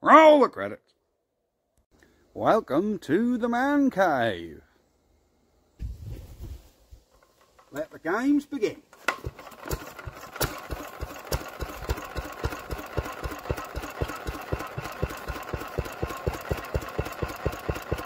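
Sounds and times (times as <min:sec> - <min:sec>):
single-cylinder engine running: 0:08.9 - 0:18.0.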